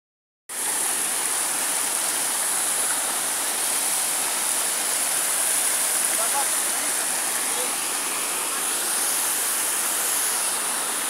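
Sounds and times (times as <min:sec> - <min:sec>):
waterfall rushing: 0:00.5 - 0:11.0.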